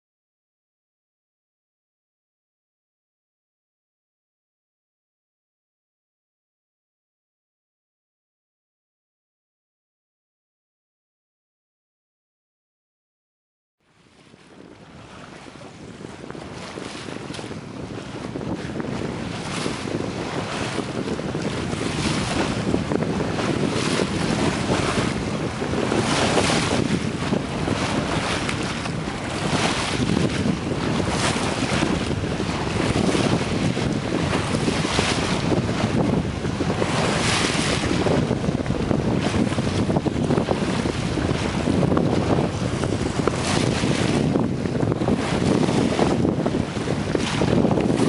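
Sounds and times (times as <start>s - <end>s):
choppy water and waves: 13.8s - 48.0s
wind buffeting microphone: 14.0s - 48.0s.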